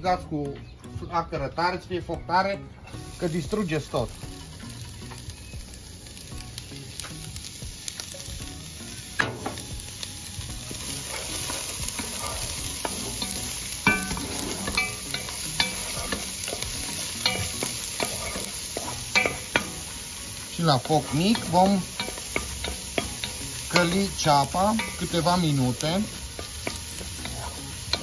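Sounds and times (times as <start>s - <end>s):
onion sizzling in oil: 2.8s - 28.0s
wooden spoon scraping a pot: 10.9s - 19.5s, 25.7s - 28.0s.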